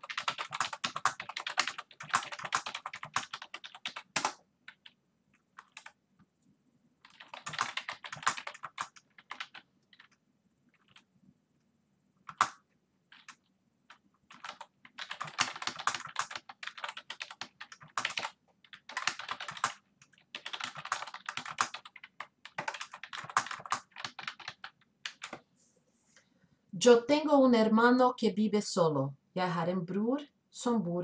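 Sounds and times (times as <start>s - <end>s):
computer keyboard typing: 0.0s - 6.0s, 7.0s - 11.1s, 12.2s - 25.4s.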